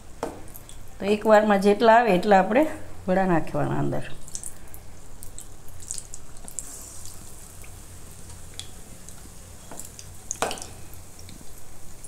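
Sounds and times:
food deep-frying in oil: 4.1s - 12.0s.

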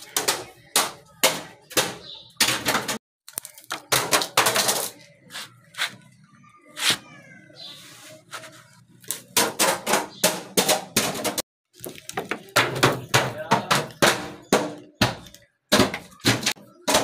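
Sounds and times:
plastic bottles clattering down steps: 10.5s - 17.0s.

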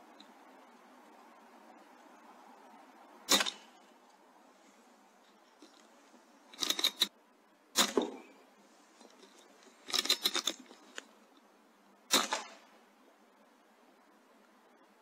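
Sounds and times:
air rifle shot crack: 3.3s - 3.7s, 12.1s - 12.7s
air rifle mechanical clicks: 6.5s - 7.1s, 9.8s - 11.1s.

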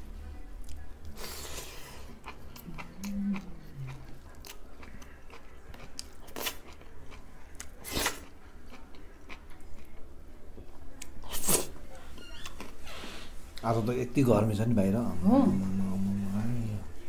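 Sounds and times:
person chewing: 0.6s - 10.0s.

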